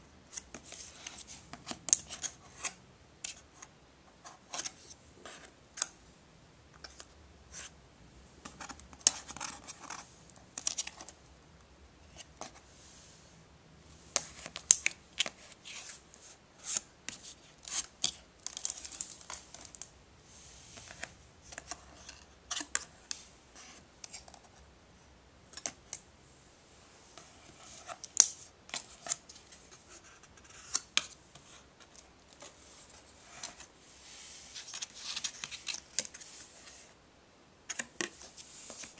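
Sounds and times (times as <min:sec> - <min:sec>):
cardboard pages turning: 0:34.5 - 0:36.9.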